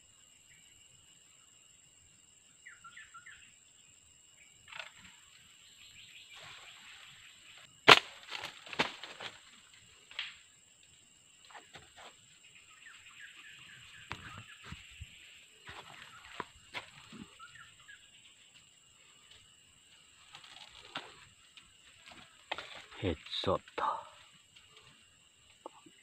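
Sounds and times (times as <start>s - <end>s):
knocks and rustles in foliage: 6.3s - 10.4s, 13.9s - 17.5s, 18.6s - 23.5s.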